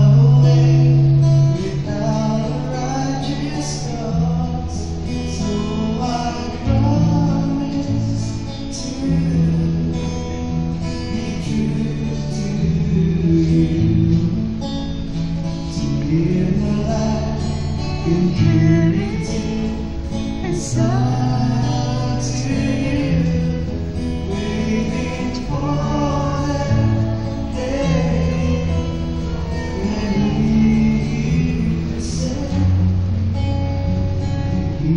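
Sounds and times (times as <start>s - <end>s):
acoustic guitar: 0.0s - 34.9s
men singing together: 16.0s - 32.9s.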